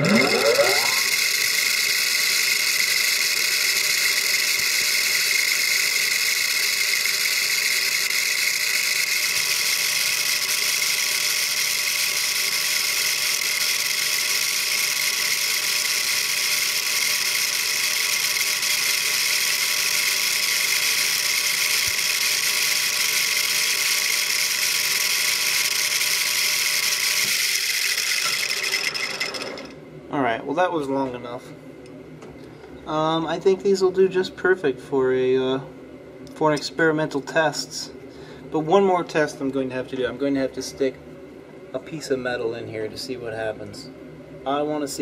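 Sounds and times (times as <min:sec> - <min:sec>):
plastic gears whirring: 0:00.0 - 0:29.7.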